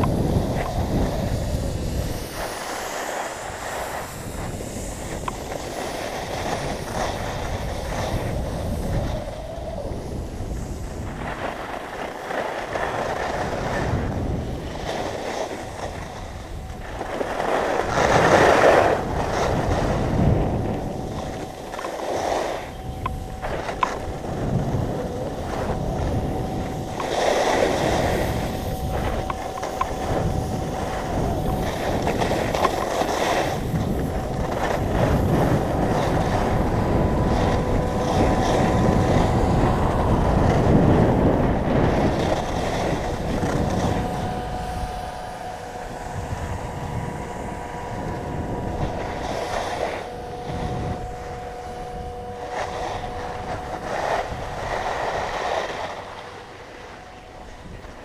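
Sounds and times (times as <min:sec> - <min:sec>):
faint steady whistling tones: 0:00.0 - 0:58.0
skis hissing over snow: 0:00.0 - 0:58.0
wind rushing over microphone: 0:00.0 - 0:58.0.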